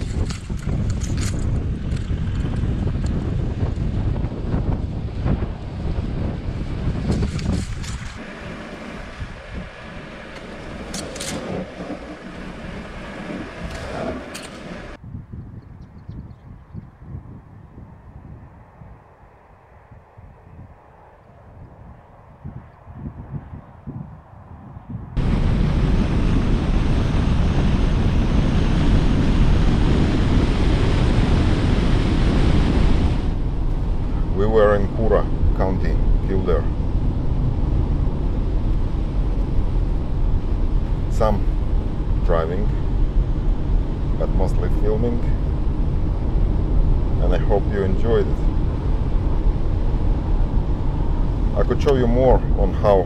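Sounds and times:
steady rushing: 0.0 - 15.0, 25.2 - 53.0
tyre and road noise: 0.0 - 15.0, 25.1 - 53.0
wind buffeting microphone: 0.0 - 53.0.

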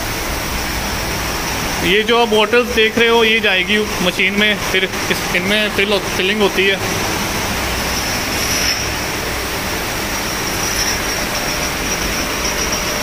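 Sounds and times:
bottling machinery running: 0.0 - 13.0
high-pitched whine: 0.0 - 13.0.

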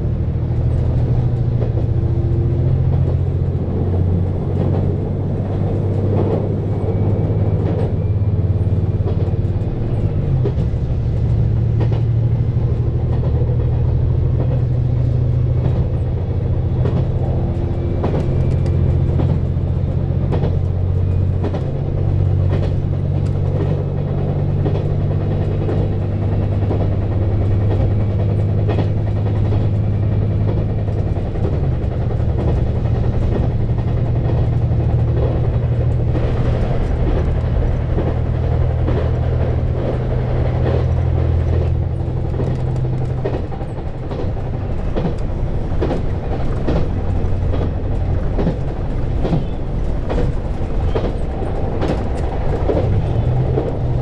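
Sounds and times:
diesel engine drone: 0.0 - 54.0
train wheels clicking over rail joints: 0.0 - 54.0.

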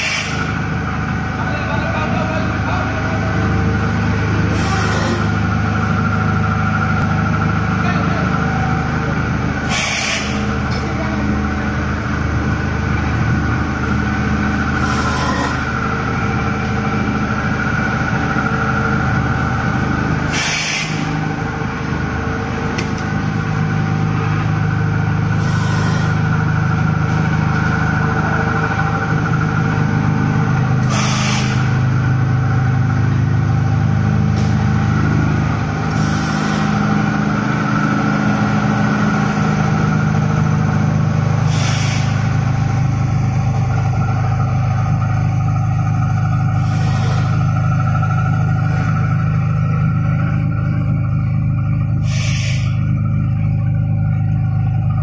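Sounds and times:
loud steady machine hum: 0.0 - 55.0
compressed air hiss: 20.3 - 21.1, 30.8 - 31.7, 41.4 - 42.2, 52.0 - 52.8.

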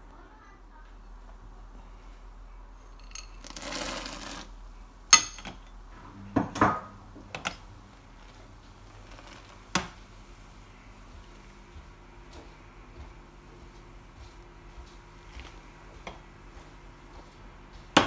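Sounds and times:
metal spoon clinking on kettle: 2.9 - 3.7, 5.2 - 5.7.

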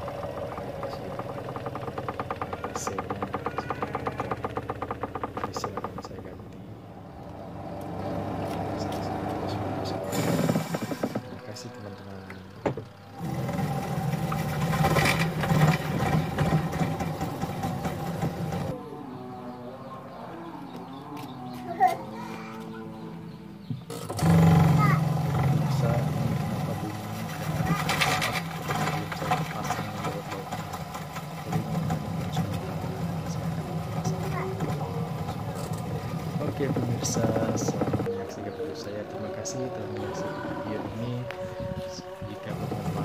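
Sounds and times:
rattling clicks: 0.0 - 9.1, 12.3 - 18.8, 23.8 - 38.2
washing machine motor humming: 0.0 - 18.8, 23.7 - 43.0.

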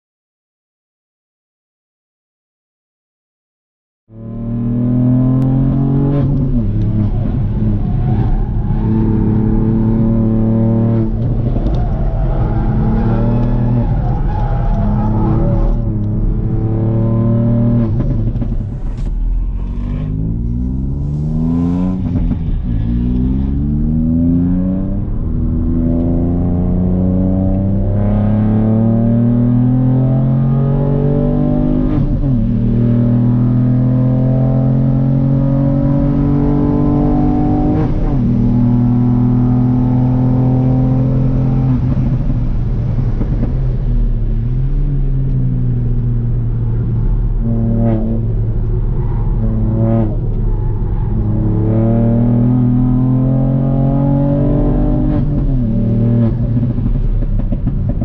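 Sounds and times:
car engine accelerating hard: 4.1 - 58.0.

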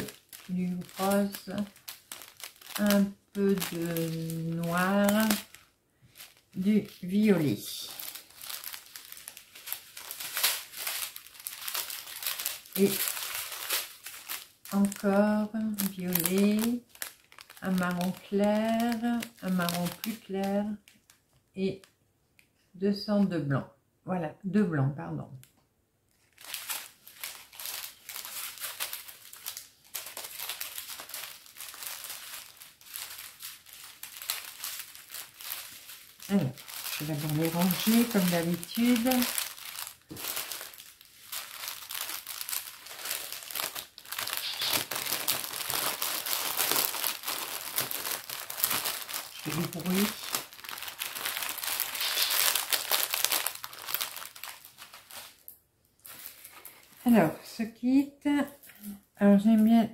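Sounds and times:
plastic bags crinkling: 0.0 - 21.4, 26.1 - 57.3.

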